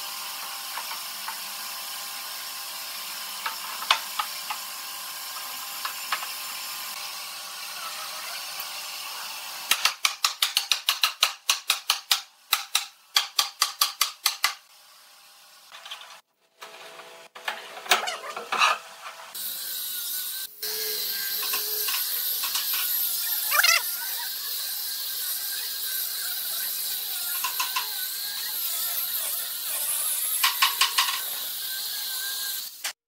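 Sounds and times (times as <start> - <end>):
angle grinder sanding wood: 0.6 - 9.5, 19.3 - 33.0.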